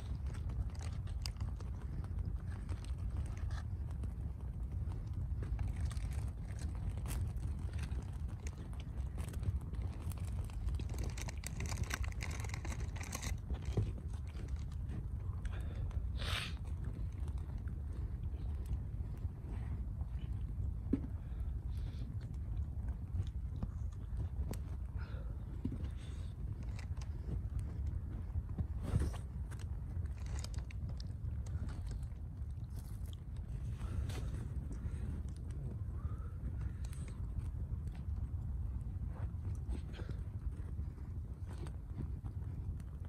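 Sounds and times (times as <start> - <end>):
loud crunch: 0.0 - 17.7
campfire crackling: 0.0 - 43.0
low rumble: 0.0 - 43.0.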